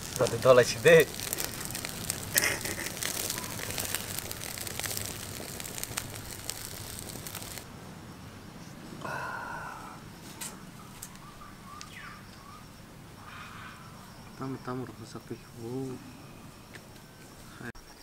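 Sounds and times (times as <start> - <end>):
fire crackling and popping: 0.0 - 7.7.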